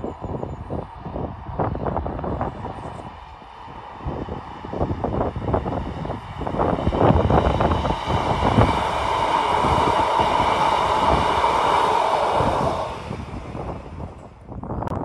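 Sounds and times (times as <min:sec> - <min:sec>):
train running past: 0:00.0 - 0:14.7
wind buffeting microphone: 0:00.0 - 0:15.0
steady tone: 0:03.0 - 0:14.7.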